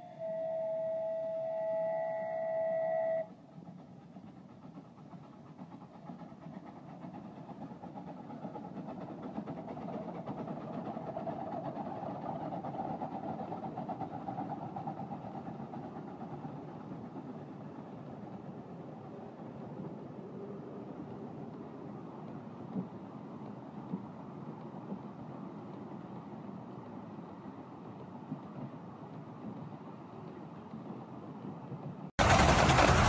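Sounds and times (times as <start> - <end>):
whistle-like tone: 0.0 - 3.4
miniature steam train rumbling: 0.0 - 33.0.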